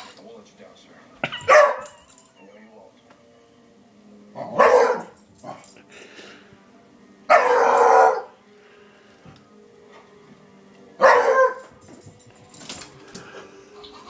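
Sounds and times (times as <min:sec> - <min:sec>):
dog barking: 0:01.2 - 0:02.0, 0:04.4 - 0:05.6, 0:07.3 - 0:08.4, 0:11.0 - 0:11.7.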